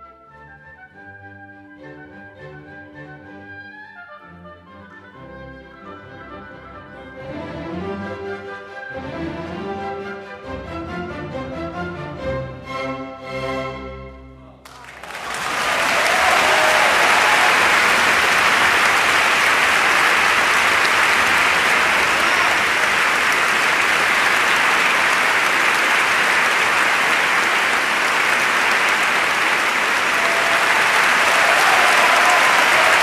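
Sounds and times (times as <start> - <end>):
audience applauding: 14.6 - 33.0.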